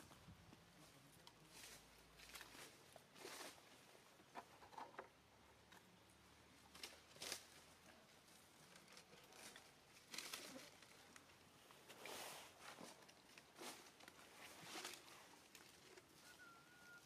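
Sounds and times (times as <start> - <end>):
faint rustles: 6.6 - 17.0.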